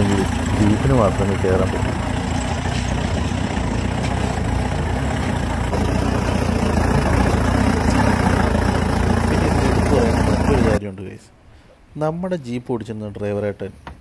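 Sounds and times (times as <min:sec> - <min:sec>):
car engine running: 0:00.0 - 0:10.8.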